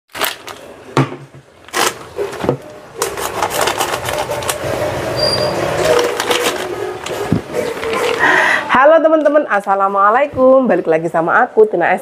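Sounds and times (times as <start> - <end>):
plastic packet crinkling: 0.1 - 0.8, 3.0 - 4.7, 5.6 - 8.6
plastic bowl knocking on counter: 1.0 - 1.5.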